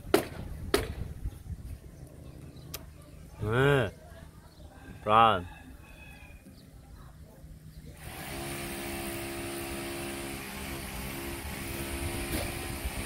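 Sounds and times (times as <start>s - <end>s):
motor engine running: 7.9s - 13.0s.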